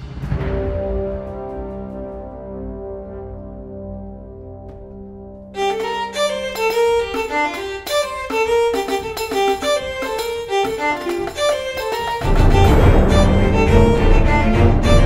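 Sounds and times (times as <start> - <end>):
fiddle playing quick melody: 5.6 - 15.0.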